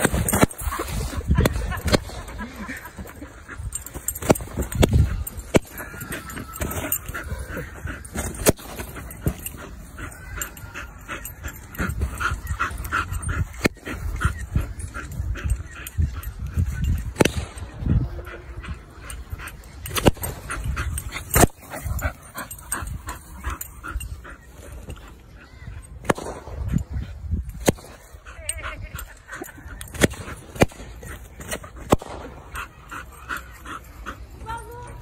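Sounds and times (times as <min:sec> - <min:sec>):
dog whining and yipping: 0:00.0 - 0:17.2.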